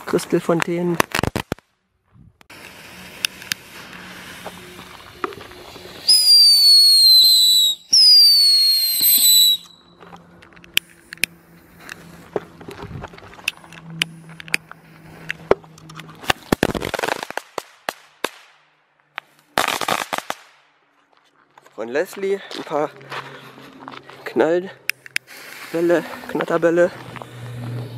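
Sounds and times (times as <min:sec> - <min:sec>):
firework pops and crackles: 0:00.3 - 0:01.8, 0:02.4 - 0:09.7, 0:16.1 - 0:18.6, 0:19.2 - 0:20.7
loud crackling firework burst: 0:02.5 - 0:09.6, 0:16.2 - 0:18.5, 0:19.6 - 0:20.6
firework falling whistles: 0:02.5 - 0:09.9.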